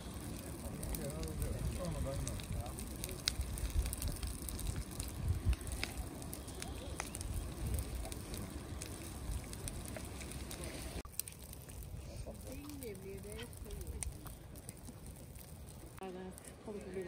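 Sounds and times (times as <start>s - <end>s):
low rumble: 0.0s - 11.0s
sharp pops of fire: 0.0s - 16.0s
wood fire crackling: 0.0s - 17.0s.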